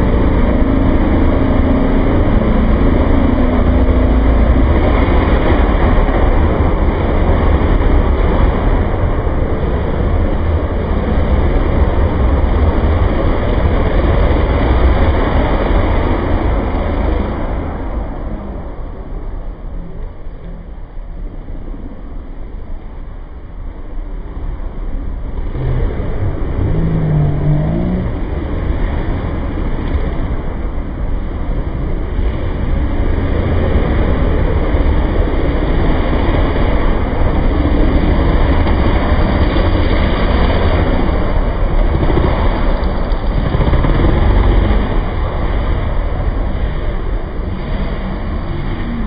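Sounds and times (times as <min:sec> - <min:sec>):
dirt bike engines revving: 0:25.3 - 0:29.8, 0:33.6 - 0:49.0.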